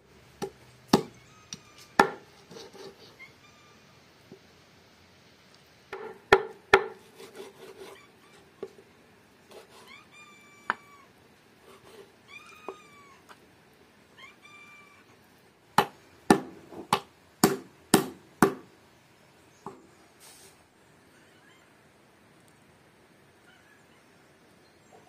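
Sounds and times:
knife chopping on wooden board: 0.4s - 1.1s, 2.0s - 2.2s, 5.9s - 7.7s, 15.8s - 18.6s
cat meowing: 1.1s - 2.0s, 3.0s - 4.0s, 9.8s - 11.1s, 12.2s - 13.4s, 14.2s - 15.1s, 21.1s - 21.8s, 23.4s - 24.1s.

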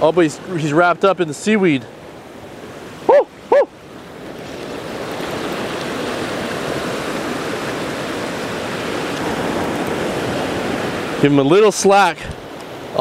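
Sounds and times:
surf breaking over rocks: 0.0s - 13.0s
short voiced cry: 3.1s - 3.7s.

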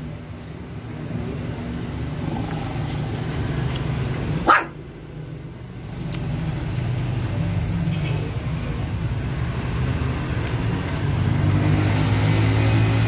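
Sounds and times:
puppy barking: 4.4s - 4.8s.

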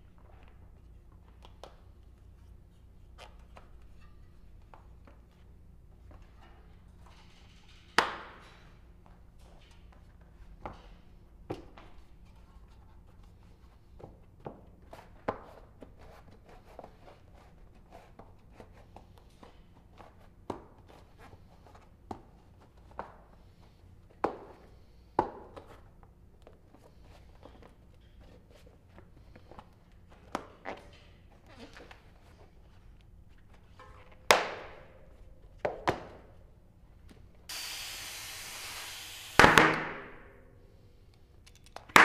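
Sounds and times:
tools and bike parts clinking: 41.4s - 41.9s.

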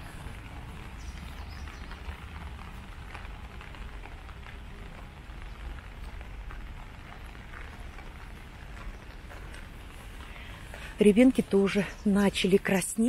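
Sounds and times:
rain drops pattering: 0.0s - 13.0s.

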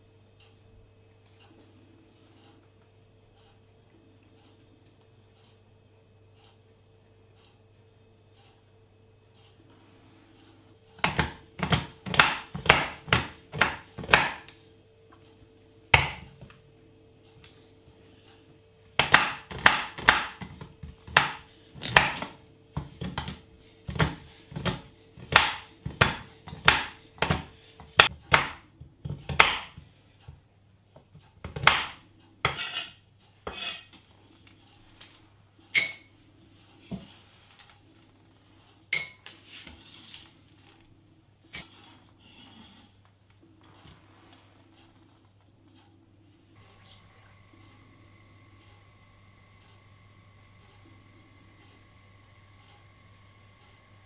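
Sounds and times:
knife chopping on wooden board: 11.0s - 14.5s, 16.0s - 16.3s, 19.0s - 29.7s.

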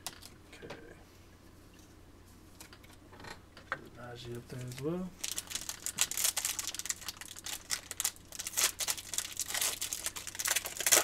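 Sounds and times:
foil wrapper crinkling: 4.4s - 11.0s
foil pack tearing open: 4.6s - 11.0s.

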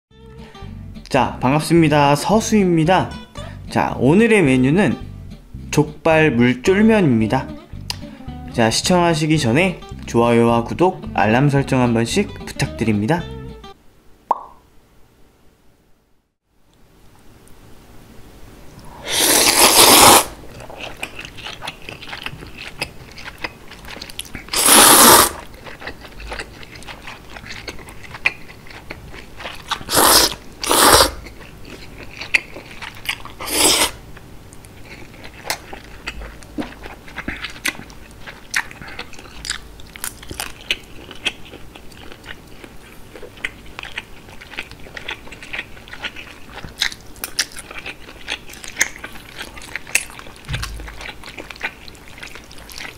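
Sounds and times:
mouth smacks and clicks: 7.8s - 8.1s
noodle slurping: 18.9s - 21.4s, 24.4s - 26.8s, 29.7s - 31.3s, 32.3s - 34.0s
wet chewing: 19.1s - 52.9s.

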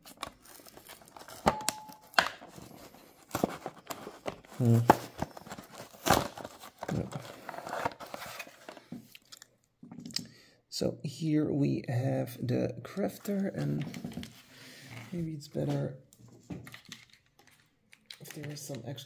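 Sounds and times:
plastic packaging crinkling: 0.0s - 9.5s.

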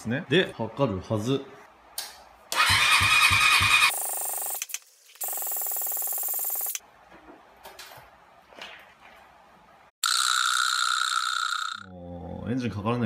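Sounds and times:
electric starter cranking engine: 2.5s - 4.8s.

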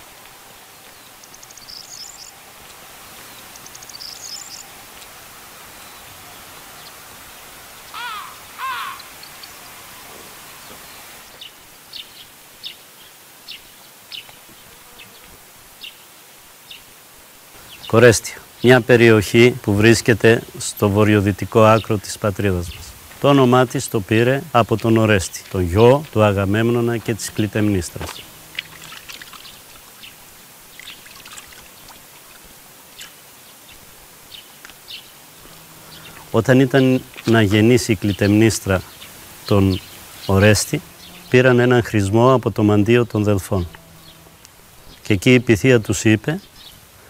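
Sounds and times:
fountain water trickling: 0.0s - 14.2s, 16.2s - 41.2s
steady outdoor hiss: 0.0s - 47.0s
small bird chirping: 0.9s - 2.4s, 3.2s - 4.7s
hands splashing water: 28.0s - 30.0s, 30.7s - 32.5s.

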